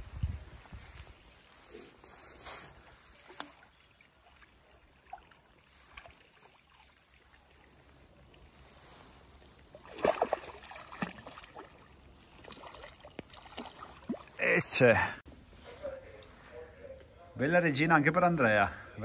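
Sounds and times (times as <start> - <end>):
faint trickling water: 2.8 - 15.2
fish splashing at the surface: 9.6 - 14.4.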